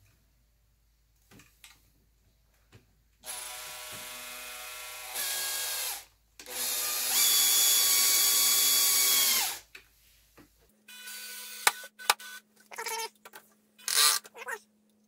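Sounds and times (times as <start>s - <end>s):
power screwdriver motor whining: 13.9s - 14.3s.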